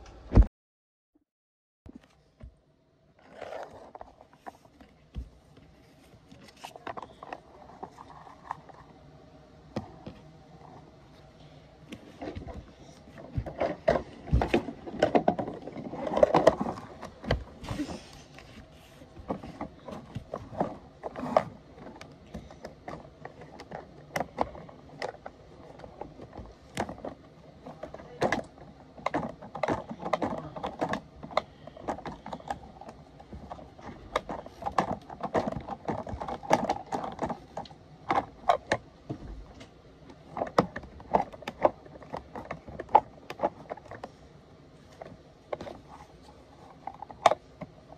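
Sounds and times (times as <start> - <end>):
plastic toy truck clicking and clacking: 19.3 - 38.8.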